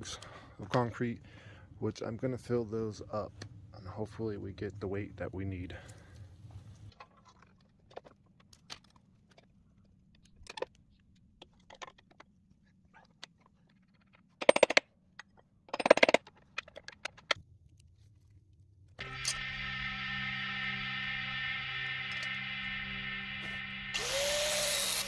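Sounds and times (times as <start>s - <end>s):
guitar music: 19.0s - 25.0s.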